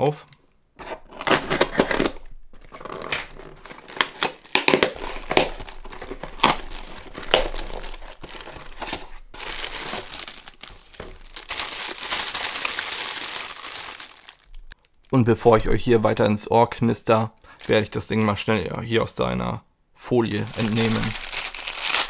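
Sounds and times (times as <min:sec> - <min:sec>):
cardboard box rustling: 0:00.8 - 0:14.4
plastic film crinkling: 0:01.0 - 0:15.2, 0:20.3 - 0:22.0.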